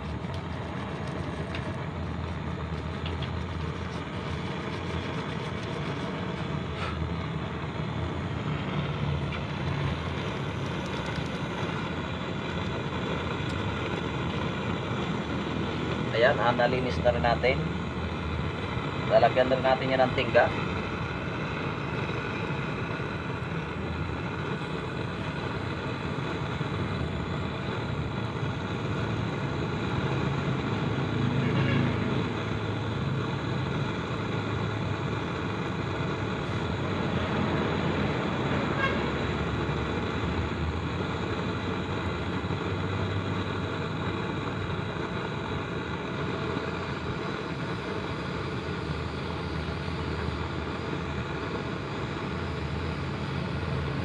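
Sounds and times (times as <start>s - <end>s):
gas torch flame roar: 0.0s - 54.0s.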